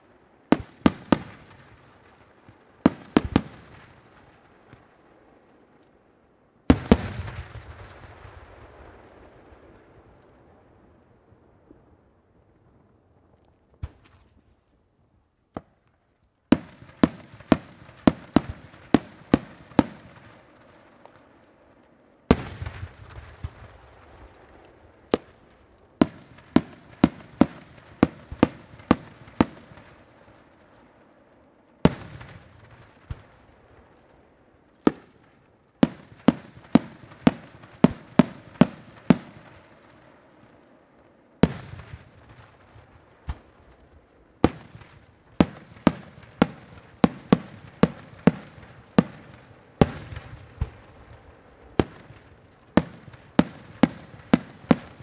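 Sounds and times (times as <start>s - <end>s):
fireworks bursting: 0.4s - 4.9s, 6.7s - 9.8s, 16.5s - 21.7s, 22.3s - 31.0s, 31.7s - 40.6s, 41.4s - 55.0s.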